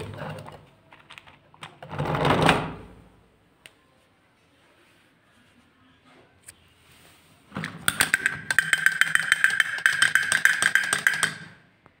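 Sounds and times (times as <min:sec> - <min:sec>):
toy drum rattling: 0:07.7 - 0:11.6.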